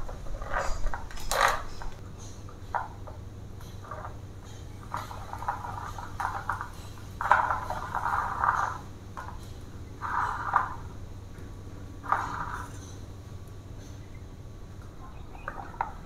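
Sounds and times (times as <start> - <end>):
plastic frame scraping and clattering: 0.0 - 2.0.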